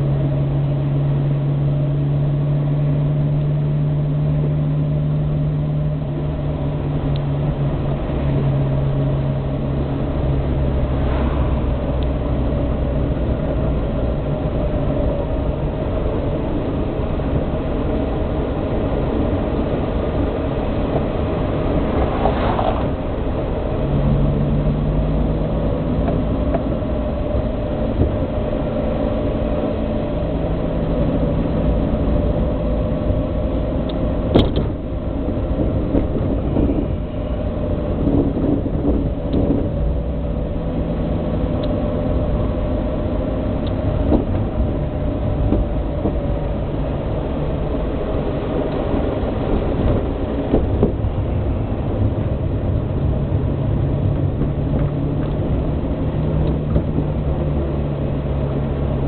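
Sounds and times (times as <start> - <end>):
car engine running: 0.0 - 59.0
road and wind noise: 0.0 - 59.0
car passing: 6.7 - 14.2, 19.3 - 27.0.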